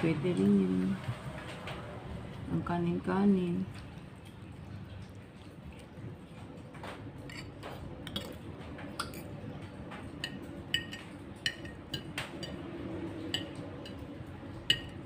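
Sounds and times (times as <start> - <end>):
cutlery clinking on plates: 6.8 - 15.0.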